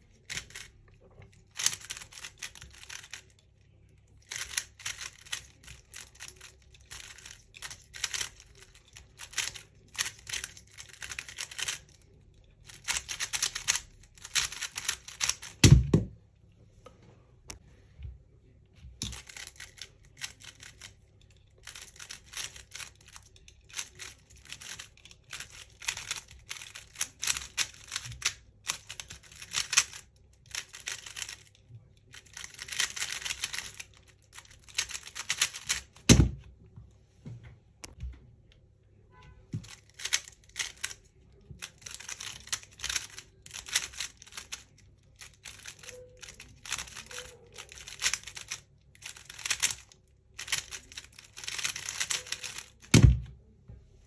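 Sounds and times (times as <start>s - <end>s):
speed cube clicking: 1.5s - 3.3s, 4.3s - 8.4s, 9.0s - 11.9s, 12.7s - 15.7s, 19.1s - 20.9s, 21.6s - 31.5s, 32.1s - 35.9s, 39.7s - 41.0s, 41.8s - 44.6s, 45.2s - 53.0s.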